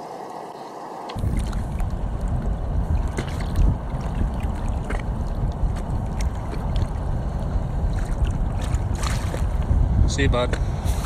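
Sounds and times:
light water splashing: 1.1 - 9.6
wind rumble on microphone: 1.2 - 11.0.

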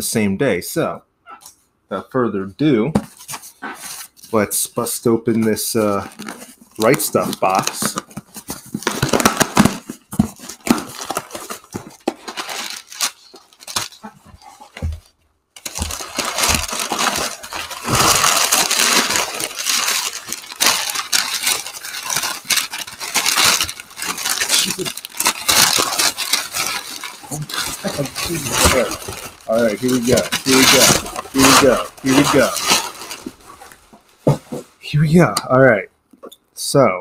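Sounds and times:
packing paper rustling: 5.4 - 34.7
cardboard box being opened: 6.1 - 33.4.

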